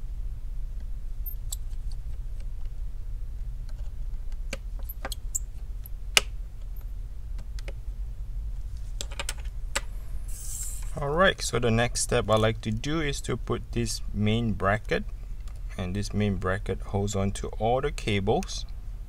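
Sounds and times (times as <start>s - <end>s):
low steady hum: 0.0s - 19.0s
clicks and taps of small parts: 9.0s - 9.9s.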